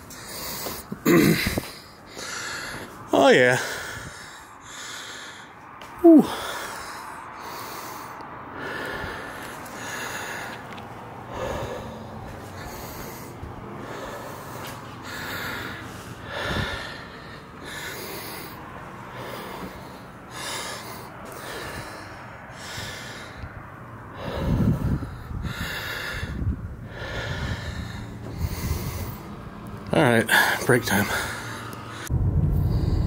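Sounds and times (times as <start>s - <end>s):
man breathing heavily: 0.0s - 33.0s.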